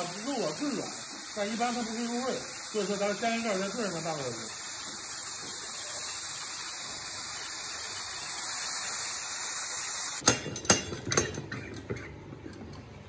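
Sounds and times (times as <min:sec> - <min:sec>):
steady high hiss: 0:00.0 - 0:10.2.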